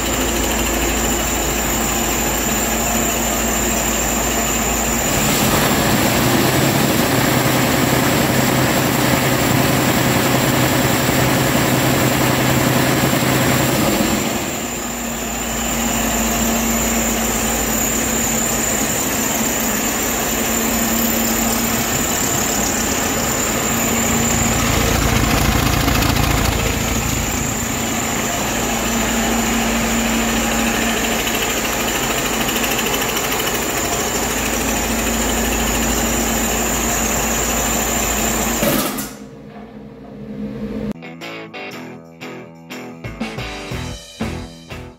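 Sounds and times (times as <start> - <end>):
diesel engine running: 0.0 - 38.6.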